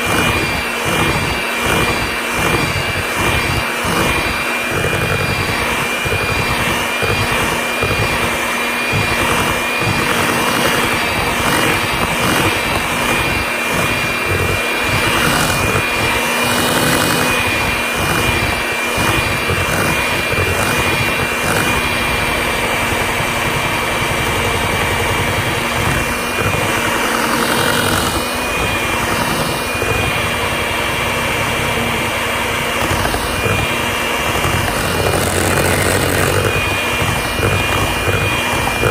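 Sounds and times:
beaters churning cream: 0.0s - 38.9s
hand mixer motor whine: 0.0s - 38.9s.

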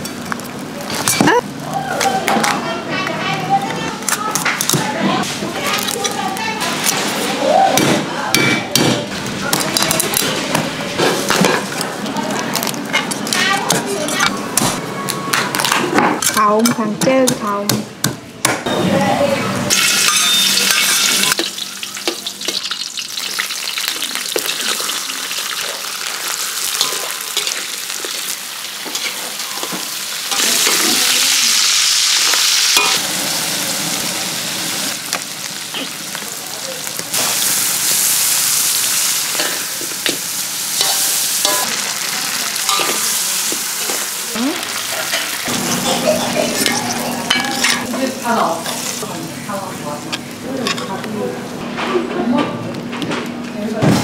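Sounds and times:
food sizzling in hot oil: 19.7s - 49.6s.

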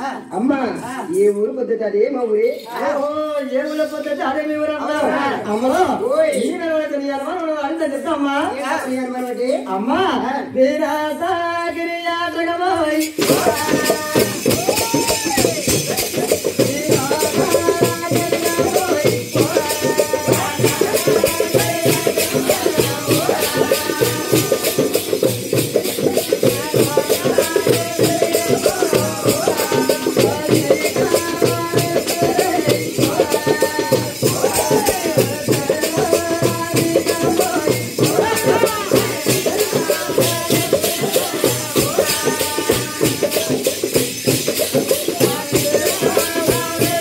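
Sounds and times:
jingling ankle bells: 2.2s - 7.4s, 12.9s - 47.0s
drum beaten in fast rhythm: 13.0s - 47.0s.

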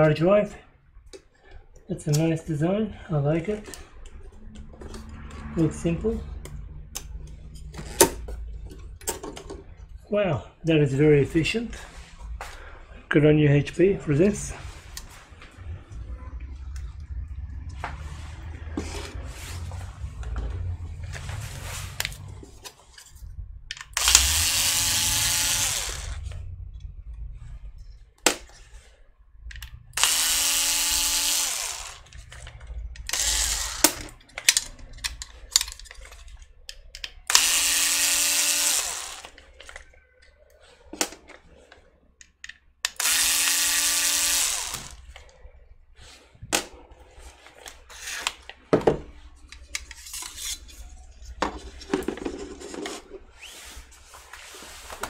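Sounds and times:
electric screwdriver motor whine: 23.9s - 26.4s, 30.0s - 32.1s, 33.0s - 34.0s, 37.3s - 39.4s, 42.9s - 45.0s.

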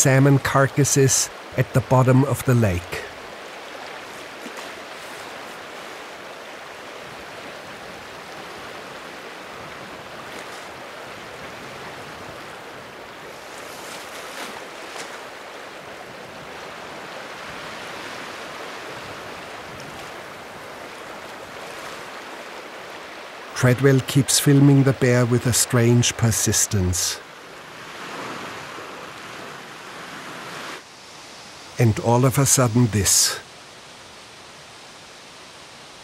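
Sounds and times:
choppy lake water washing: 0.0s - 36.0s
faint water splashes: 0.8s - 25.7s.

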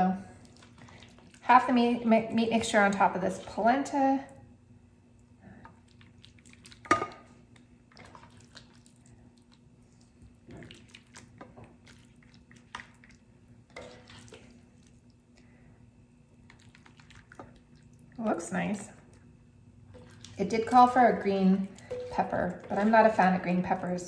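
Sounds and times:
wet plops and squelches: 5.8s - 15.2s, 16.4s - 18.1s
metal ladle clinking: 21.8s - 22.9s.

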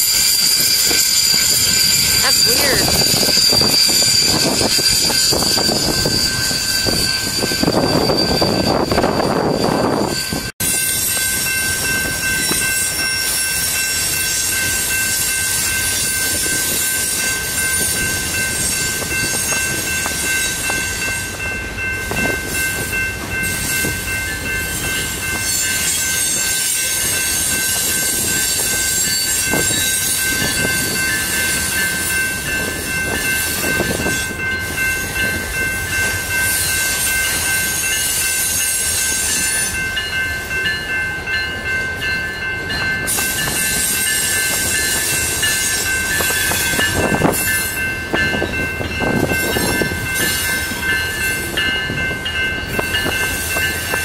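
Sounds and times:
freight train rolling past: 0.0s - 54.0s
high-pitched ringing tones: 0.0s - 54.0s
wheels clacking over rail joints: 42.4s - 54.0s.

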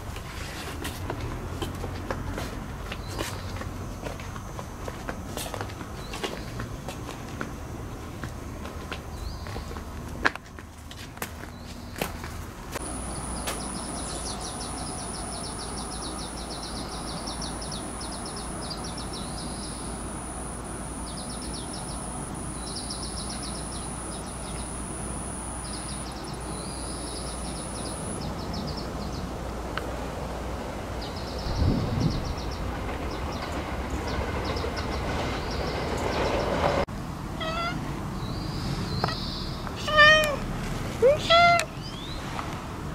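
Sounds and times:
high-pitched insect whine: 12.8s - 28.4s
low steady hum: 12.8s - 28.7s
insects chirping: 12.8s - 29.2s.

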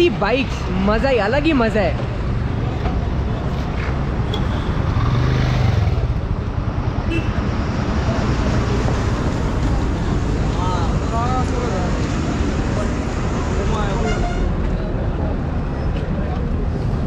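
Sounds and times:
highway traffic: 0.0s - 17.0s
motorcycle engines running: 2.0s - 11.6s.

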